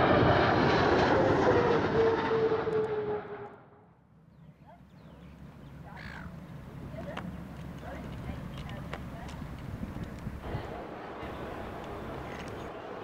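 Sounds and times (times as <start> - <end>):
jet airliner flying low: 0.0 - 4.0, 6.2 - 13.0
bird chirps: 4.3 - 6.4.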